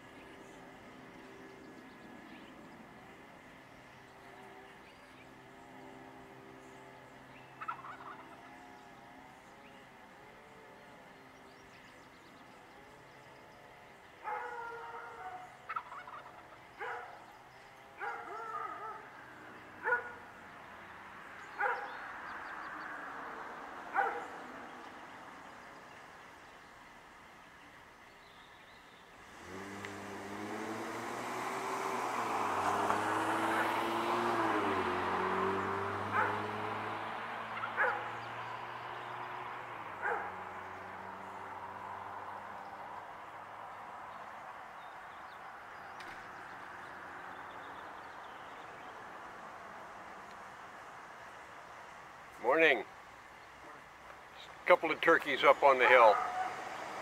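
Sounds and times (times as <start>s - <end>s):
vehicle hum passing: 0.0s - 57.0s
turkey gobbling: 7.6s - 8.4s, 14.4s - 17.2s, 37.6s - 38.1s.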